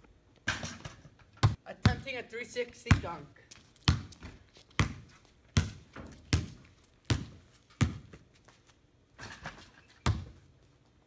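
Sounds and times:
basketball bouncing on stone: 0.5s - 2.1s, 2.9s - 3.2s, 3.9s - 8.2s, 10.0s - 10.4s
basketball thud: 3.9s - 5.0s.

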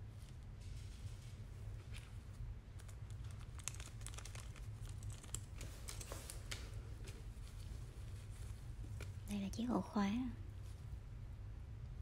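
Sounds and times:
packaging crinkling and rustling: 1.8s - 9.2s.

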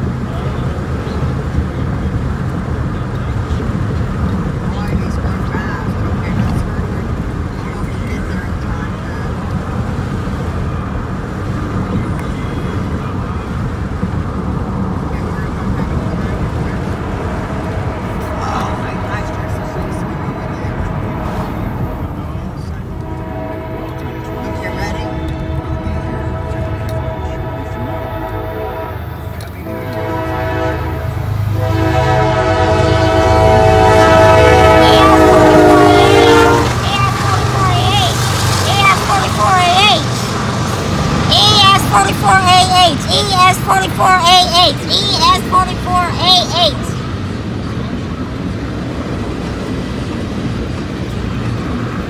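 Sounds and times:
vehicle rumble: 0.0s - 52.0s
locomotive air horn: 17.4s - 22.0s, 22.8s - 38.2s.

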